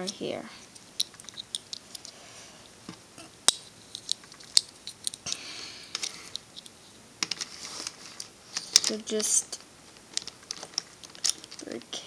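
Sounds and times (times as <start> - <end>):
plastic puzzle pieces clicking: 0.0 - 2.1, 3.5 - 7.5, 8.2 - 9.3, 10.0 - 11.8
plastic rubbing: 6.0 - 11.9.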